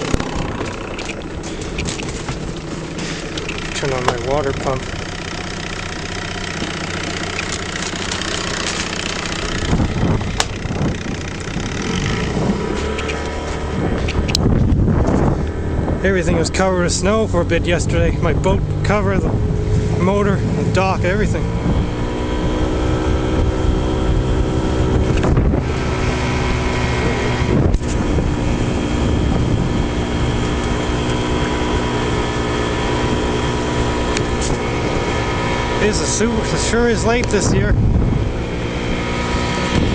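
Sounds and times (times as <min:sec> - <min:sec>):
outboard motor running: 0:00.0 - 0:39.9
wind on microphone: 0:09.1 - 0:39.9.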